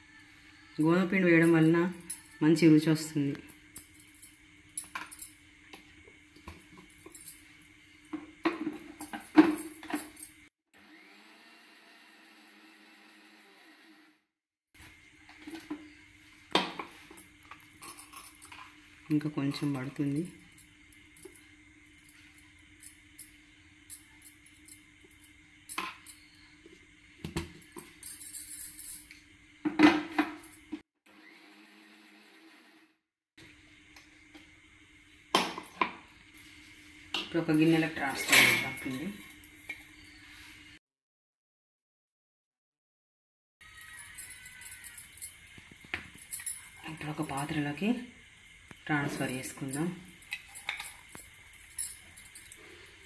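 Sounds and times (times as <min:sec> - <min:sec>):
metal spoon clinking and scraping: 0:50.3 - 0:52.6.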